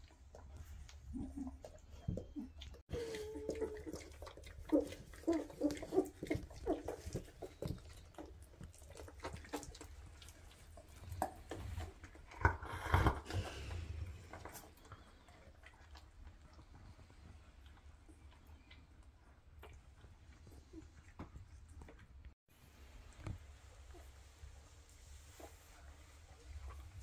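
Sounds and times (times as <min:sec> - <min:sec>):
puppies suckling clicks: 0:00.0 - 0:12.7, 0:14.2 - 0:22.4
puppies whimpering and squeaking: 0:01.1 - 0:08.4.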